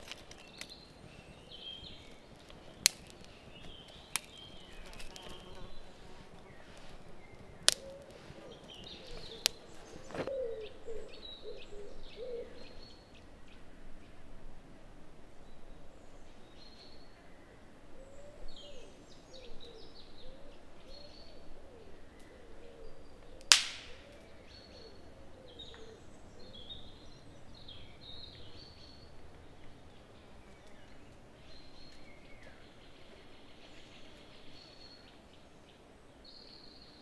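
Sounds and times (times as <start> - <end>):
birds chirping and singing: 0.0 - 13.7, 15.5 - 37.0
loud sharp crack: 2.8 - 3.3, 23.5 - 24.1.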